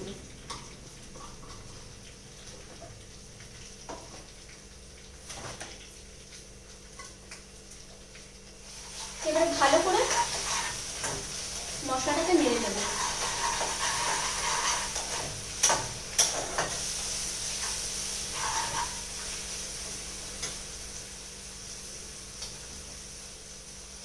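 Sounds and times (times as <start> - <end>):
masala sizzling in oil: 0.0 - 24.0.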